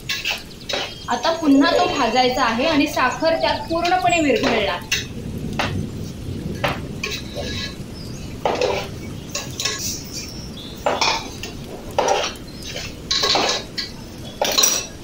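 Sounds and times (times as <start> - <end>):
spatula scraping a metal pot: 8.4 - 10.0.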